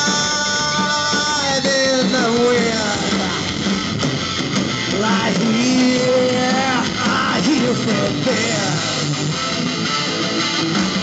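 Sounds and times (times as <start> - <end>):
bass guitar: 0.0 - 11.0
drums: 0.0 - 11.0
electric guitar: 0.0 - 11.0.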